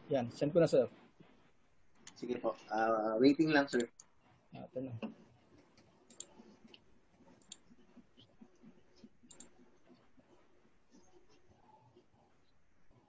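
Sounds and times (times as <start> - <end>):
computer mouse clicks: 3.8 - 4.2, 5.0 - 12.0.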